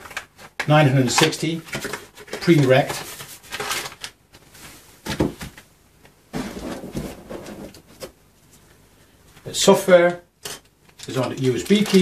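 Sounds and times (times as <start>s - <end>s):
cardboard rustling: 1.2s - 5.6s, 6.4s - 8.2s.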